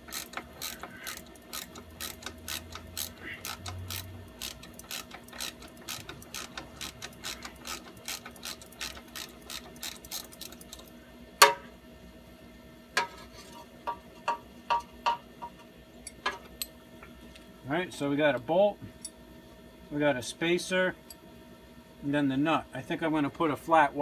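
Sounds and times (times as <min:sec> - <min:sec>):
ratchet wrench clicking: 0:00.0 - 0:10.8.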